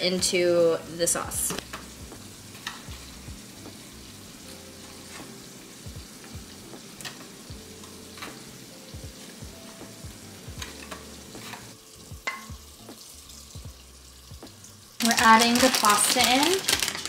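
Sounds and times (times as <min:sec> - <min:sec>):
leaves sizzling in butter: 0:00.0 - 0:17.0
crackles and pops: 0:14.4 - 0:17.0.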